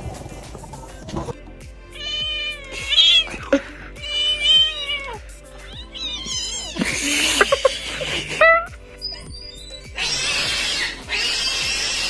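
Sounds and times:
background music: 0.0 - 12.0
cat meowing: 2.0 - 3.4, 4.0 - 12.0.

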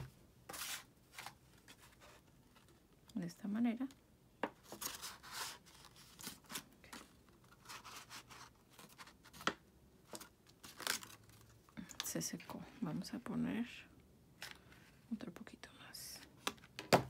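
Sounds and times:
cardstock rustling and rubbing: 0.5 - 2.9, 4.6 - 11.5.

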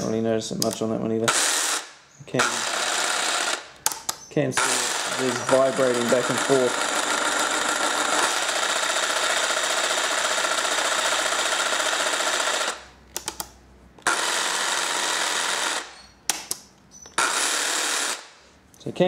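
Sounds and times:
clicks: 0.0 - 0.9, 3.8 - 6.5, 13.1 - 14.1, 16.3 - 17.2
jigsaw running: 1.3 - 3.7, 4.6 - 12.9, 14.0 - 16.0, 17.2 - 18.4.

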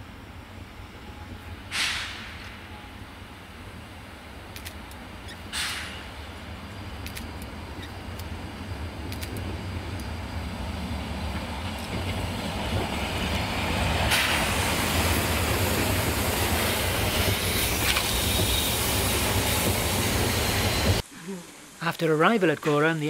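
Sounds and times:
steam locomotive hissing: 1.5 - 4.4, 5.1 - 21.9
coaches clacking over rails: 4.4 - 21.0.

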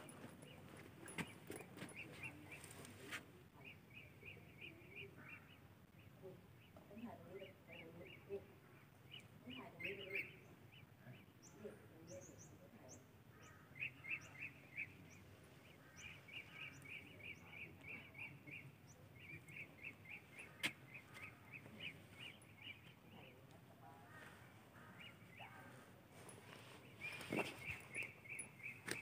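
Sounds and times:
birds chirping: 0.0 - 29.0
high bird tweets: 9.1 - 23.4, 26.8 - 29.0.

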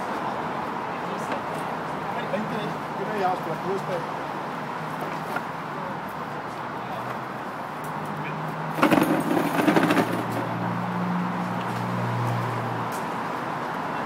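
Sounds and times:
engine hum: 8.6 - 13.6
wooden staves knocking and clattering: 8.8 - 10.5.

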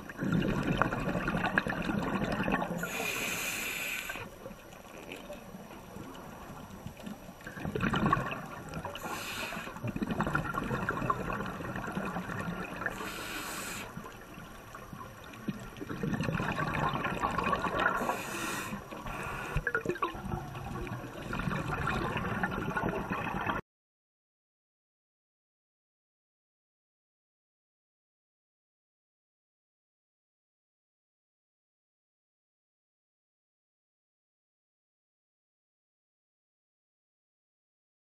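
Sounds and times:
underwater bubbling and gurgling: 0.0 - 23.6
regulator breathing hiss: 2.8 - 4.3, 9.0 - 9.8, 12.9 - 14.0, 18.0 - 19.6.

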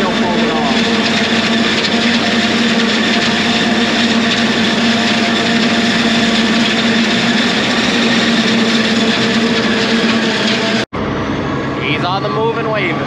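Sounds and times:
forage harvester chopping corn: 0.0 - 10.8
truck engine running: 0.0 - 13.0.

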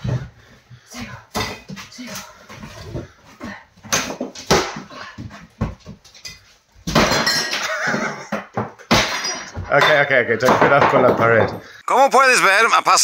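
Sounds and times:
panels breaking and debris falling: 6.8 - 11.8.

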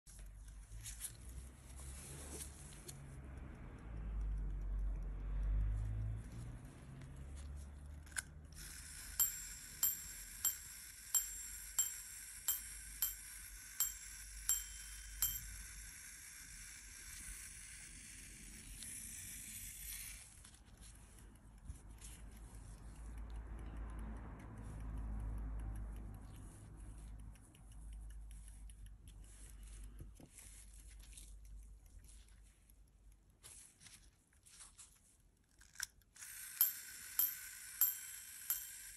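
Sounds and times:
pocket watch pendant click: 8.6 - 15.9, 36.6 - 38.9
hammer striking small bell: 8.7 - 16.0, 36.6 - 38.9.

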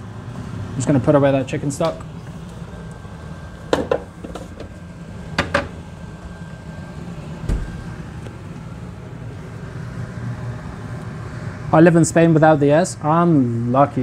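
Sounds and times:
low background hum: 0.0 - 14.0
cupboard door closing: 7.4 - 7.9
dull low thump: 7.4 - 7.9.

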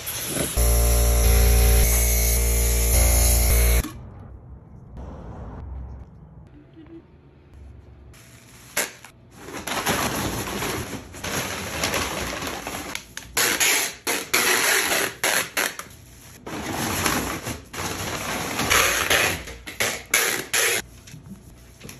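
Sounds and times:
packing tape ripping off roll: 12.8 - 15.9.

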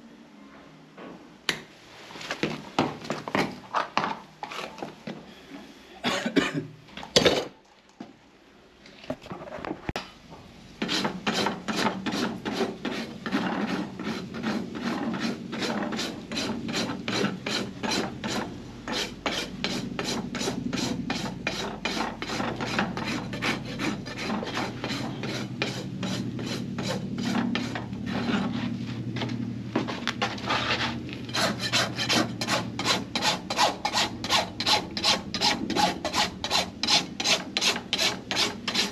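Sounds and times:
rasp filing a hoof: 10.8 - 28.7, 30.2 - 38.9.

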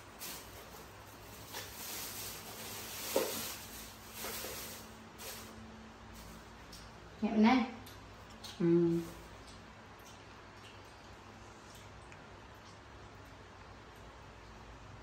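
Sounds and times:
plastic bag rustling: 0.0 - 6.5.

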